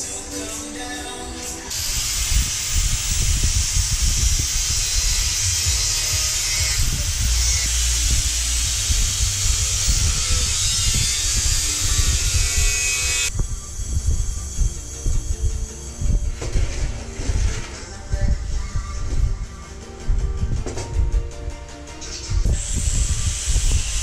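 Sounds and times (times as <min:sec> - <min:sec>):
power cutting tool cutting metal: 0:01.7 - 0:16.4, 0:22.5 - 0:24.0.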